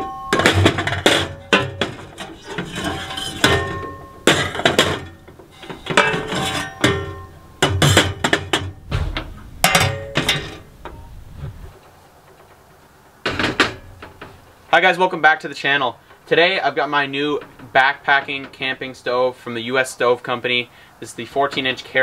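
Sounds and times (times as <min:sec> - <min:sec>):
metal pipes clanking on glass: 0:00.0 - 0:11.1.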